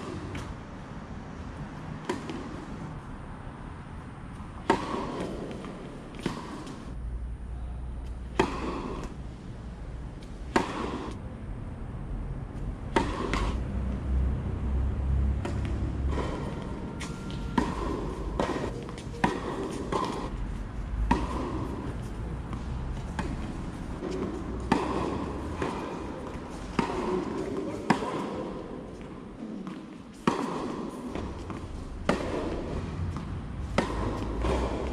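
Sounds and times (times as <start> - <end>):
tennis ball hit by rackets: 2.0 - 2.8, 4.3 - 7.0, 8.1 - 9.2, 10.2 - 11.2, 12.9 - 13.7, 15.2 - 20.4, 21.0 - 34.9.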